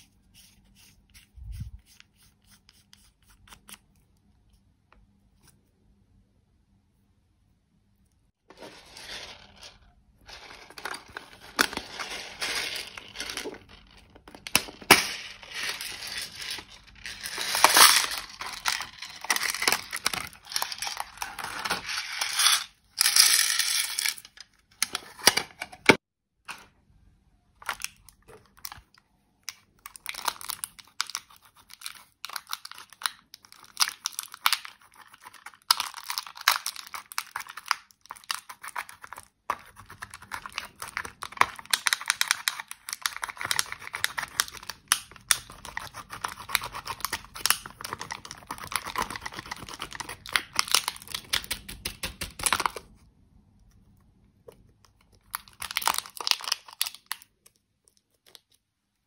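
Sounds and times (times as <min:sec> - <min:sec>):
powder crumbling crackle: 0:08.5 - 0:22.0, 0:54.6 - 0:58.6.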